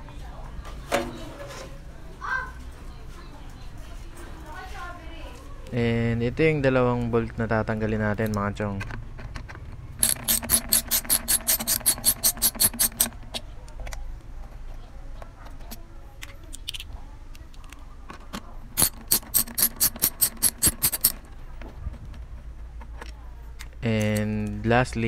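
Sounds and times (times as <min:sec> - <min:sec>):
socket ratchet clicking: 0:08.3 - 0:13.4, 0:18.8 - 0:21.2.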